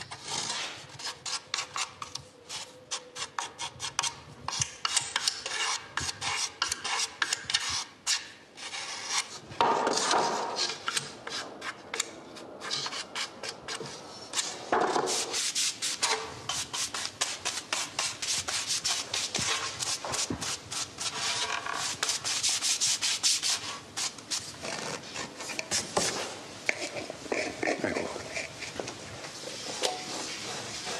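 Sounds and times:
file scraping wood: 2.5s - 11.8s
sanding block scraping wood: 12.6s - 24.5s, 29.5s - 30.9s.

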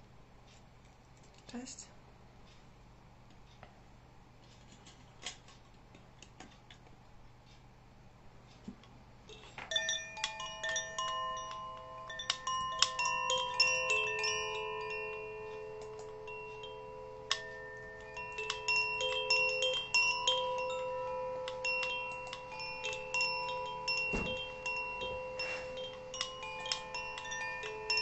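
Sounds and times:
bamboo tube chime ringing: 9.7s - 28.0s.

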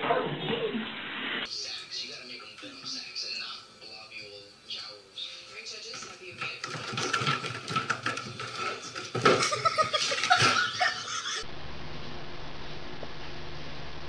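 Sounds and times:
exercise wheel knocking and clattering: 6.4s - 11.0s.

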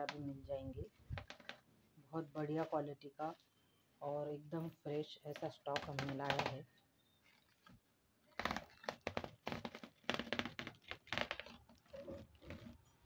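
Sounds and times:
clay chunks clicking and crackling: 5.3s - 12.9s.

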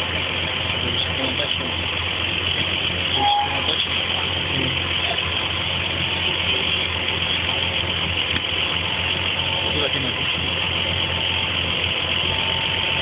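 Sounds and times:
tractor diesel engine idling: 0.0s - 13.0s
short tone: 3.1s - 3.8s.

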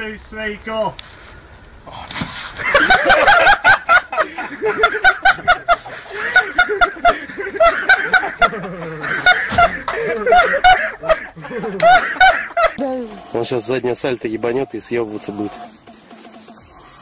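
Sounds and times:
people laughing: 2.6s - 12.8s.

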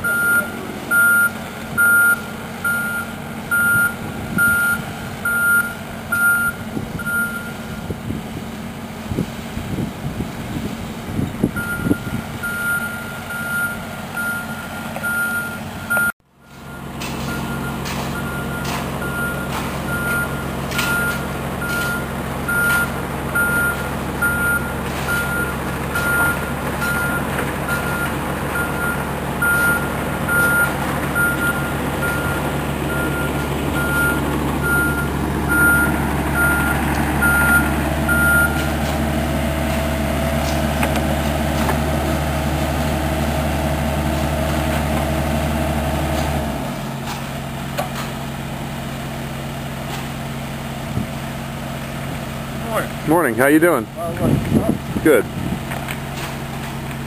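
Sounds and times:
backup alarm beeping: 0.0s - 7.6s, 11.6s - 38.7s
diesel engine running: 0.0s - 57.0s.

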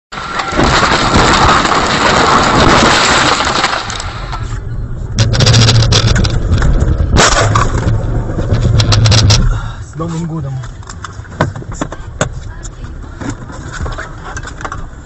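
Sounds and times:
car crash crunching: 0.1s - 12.4s
sharp smash: 0.2s - 4.5s, 7.0s - 8.0s
engine hum: 0.4s - 15.0s.

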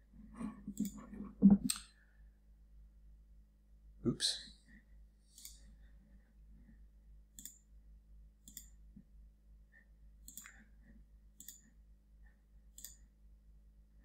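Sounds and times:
faint low hum: 0.0s - 14.0s
computer mouse clicks: 0.7s - 1.9s, 5.4s - 5.6s, 7.3s - 7.7s, 8.4s - 8.8s, 10.2s - 10.6s, 11.4s - 11.8s, 12.7s - 13.1s.

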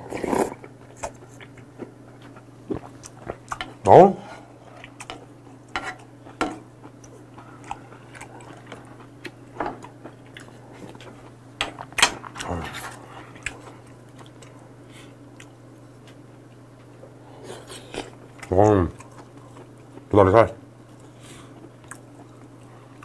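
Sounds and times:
steady low hum: 0.0s - 23.0s
soft chewing: 0.2s - 20.1s, 20.8s - 23.0s.

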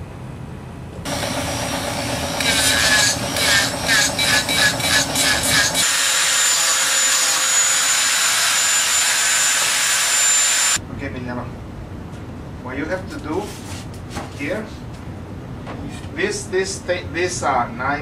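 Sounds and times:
hand saw sawing: 1.1s - 10.8s.

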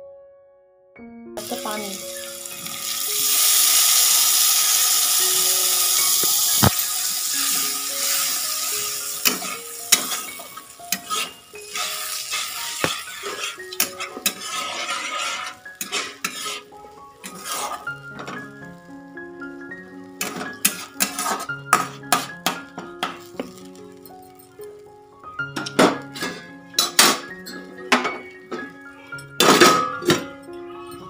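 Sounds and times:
water sizzling in hot pan: 1.4s - 29.6s
metal spatula scraping pan: 6.0s - 18.5s, 20.2s - 22.6s, 26.0s - 28.2s.

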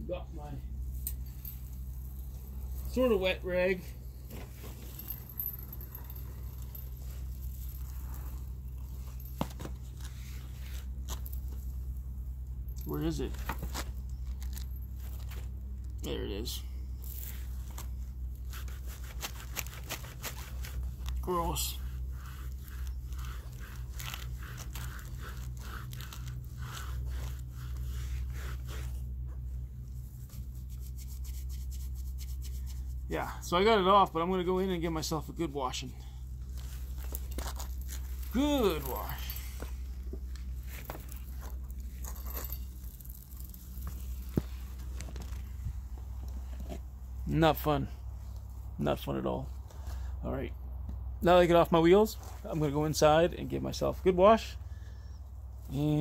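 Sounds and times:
steady low hum: 0.0s - 56.0s
cloth rag scrubbing a wheel: 0.4s - 48.7s
wheelchair rolling on concrete: 17.0s - 29.4s, 36.4s - 46.9s.

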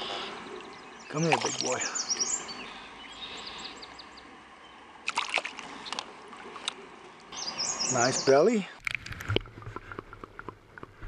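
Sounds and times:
water splashing: 0.0s - 2.6s, 4.9s - 7.4s
bird chirping: 0.5s - 4.8s, 7.3s - 8.5s.

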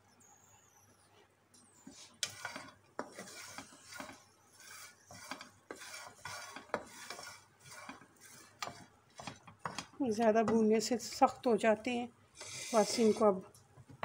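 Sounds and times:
wooden spatula scraping pan: 1.9s - 11.5s, 12.4s - 13.4s.

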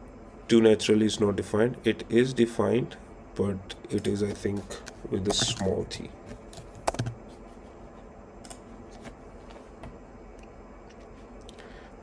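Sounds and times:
low room hiss: 0.0s - 12.0s
computer keys clicking: 6.5s - 7.2s.

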